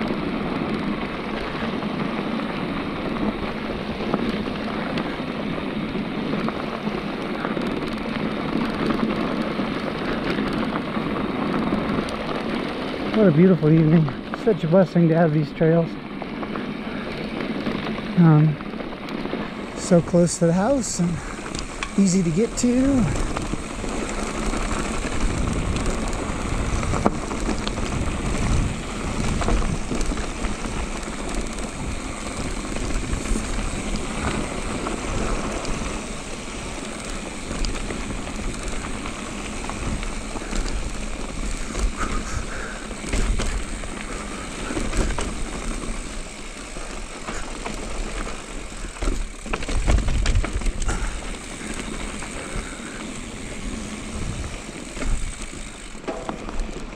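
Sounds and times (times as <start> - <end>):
bike rattling over bumps: 0.0 - 56.9
bike tyres on dirt and stones: 0.0 - 56.9.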